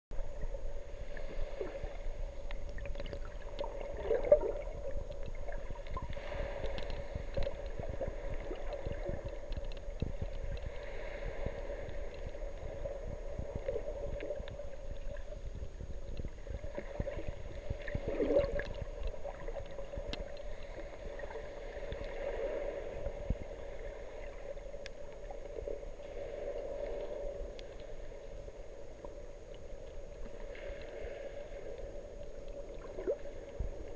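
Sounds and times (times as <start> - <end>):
underwater gurgling: 0.1 - 33.9
small clicks: 8.5 - 10.7.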